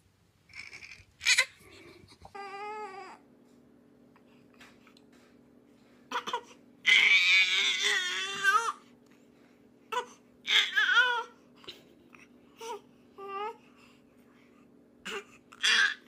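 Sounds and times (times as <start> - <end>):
infant wailing: 0.5 - 1.6, 2.3 - 3.2, 6.1 - 8.8, 9.9 - 11.3, 15.1 - 16.0
infant whimpering: 0.5 - 3.2, 12.6 - 13.6.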